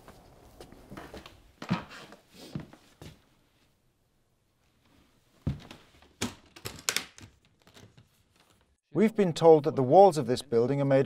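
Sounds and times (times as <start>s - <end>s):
footsteps: 4.8s - 6.1s.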